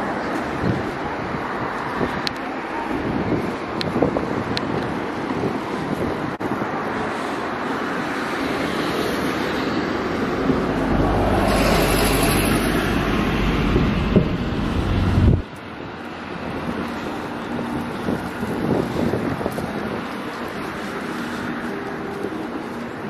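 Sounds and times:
road traffic passing: 0:00.0 - 0:23.0
heavy vehicle low rumble: 0:09.7 - 0:23.0.

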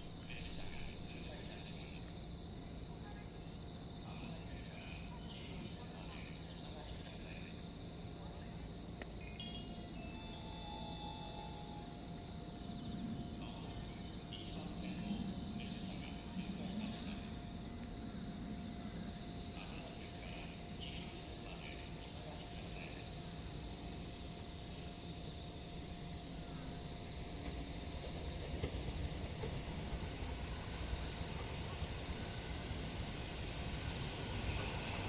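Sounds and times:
insects trilling: 0:00.0 - 0:35.0
train rumble: 0:00.0 - 0:35.0
train wheel knock: 0:27.4 - 0:30.3.

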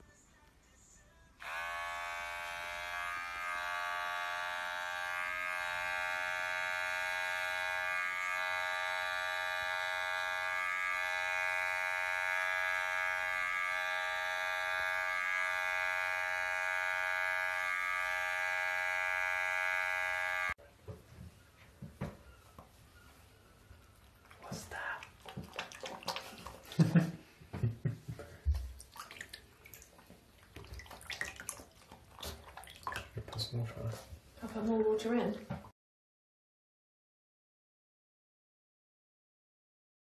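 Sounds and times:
electric hair clippers buzzing: 0:01.4 - 0:20.6.

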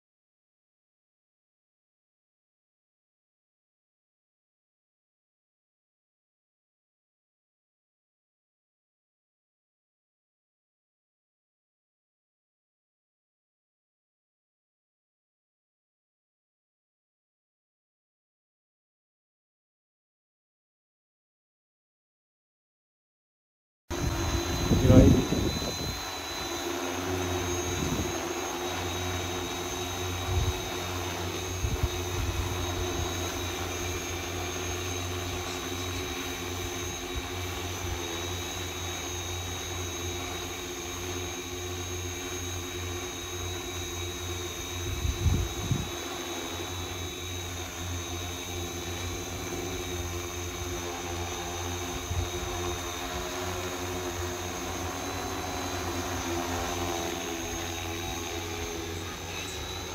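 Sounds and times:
drone propellers humming: 0:23.9 - 0:59.9.

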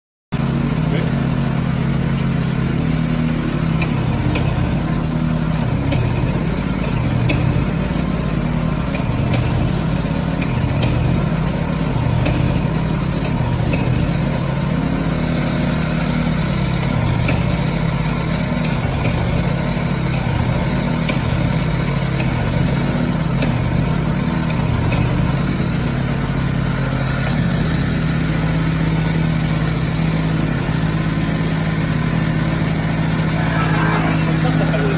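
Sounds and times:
paint-spraying machine humming: 0:00.4 - 0:34.9
hiss of spraying paint: 0:02.1 - 0:14.3, 0:15.8 - 0:26.6.

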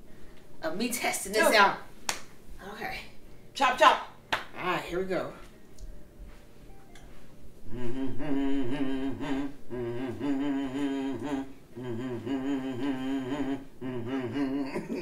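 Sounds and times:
person humming: 0:07.6 - 0:15.0.

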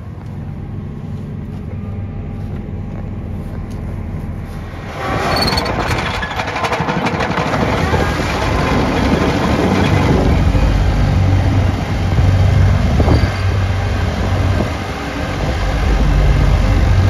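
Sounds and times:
tractor engine humming: 0:00.0 - 0:17.0
plates rattling on gravel: 0:05.6 - 0:10.6.

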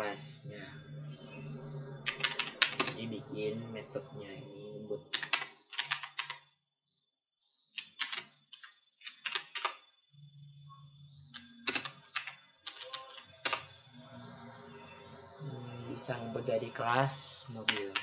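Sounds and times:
keyboard typing: 0:02.0 - 0:03.3, 0:04.9 - 0:06.5, 0:07.7 - 0:09.9, 0:11.3 - 0:13.8, 0:17.4 - 0:18.0.

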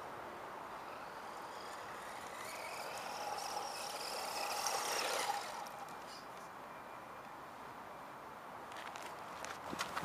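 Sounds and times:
toy truck motor whining: 0:00.8 - 0:06.3.

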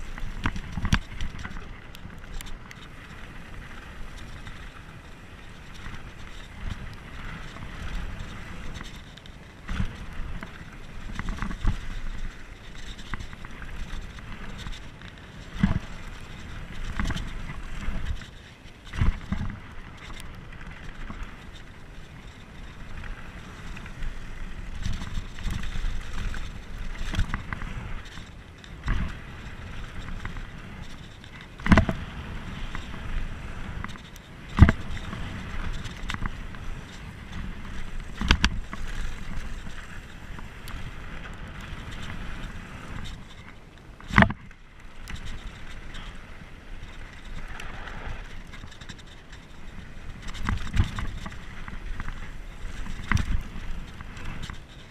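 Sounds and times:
bike rattling: 0:00.0 - 0:54.9
bike tyres rumbling on dirt: 0:00.0 - 0:54.9
wind on microphone: 0:00.0 - 0:54.9
sharp knocks of bike hitting bumps: 0:28.8 - 0:41.2, 0:41.8 - 0:46.3.

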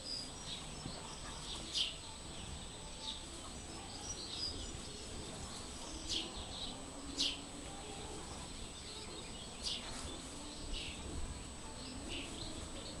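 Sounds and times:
small birds chirping: 0:00.0 - 0:13.0.

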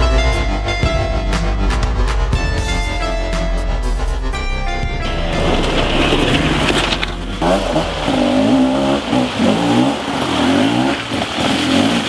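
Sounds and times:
dirt bike engine revving: 0:05.0 - 0:12.0.

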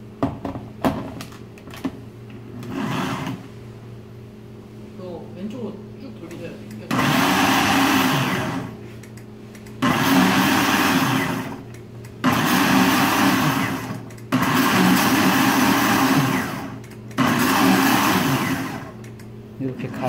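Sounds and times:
blender motor pulsing: 0:02.6 - 0:03.4, 0:06.9 - 0:08.8, 0:09.8 - 0:19.0.

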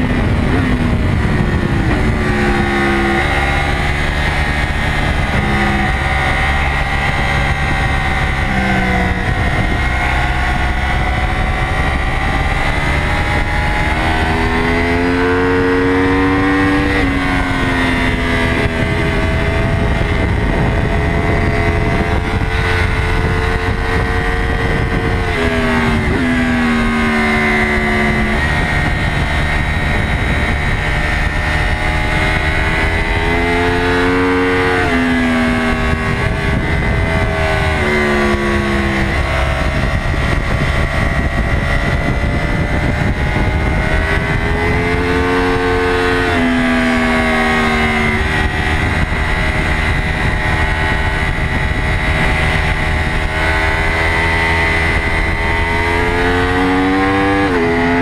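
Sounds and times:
motorcycle engine at high revs: 0:00.0 - 0:58.0
rushing wind noise: 0:00.0 - 0:58.0.

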